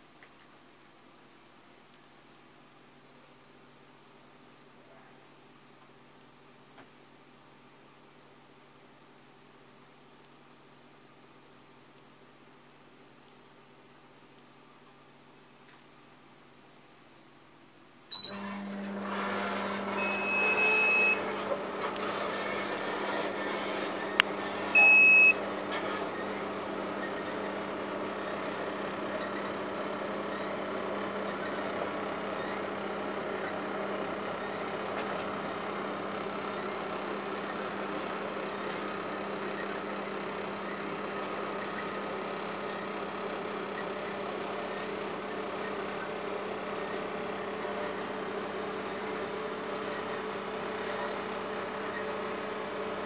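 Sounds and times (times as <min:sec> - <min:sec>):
short electronic beeps: 0:18.1 - 0:18.4, 0:20.0 - 0:21.3, 0:24.8 - 0:25.4
microwave hum and fan: 0:18.1 - 0:53.0.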